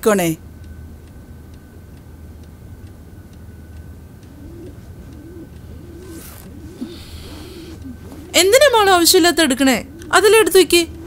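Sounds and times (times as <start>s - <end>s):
faint regular ticking: 0.4s - 11.0s
dove cooing: 4.2s - 11.0s.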